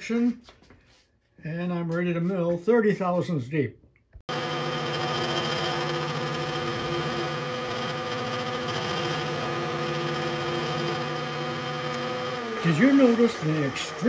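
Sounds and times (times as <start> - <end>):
milling machine humming: 4.3 - 14.0.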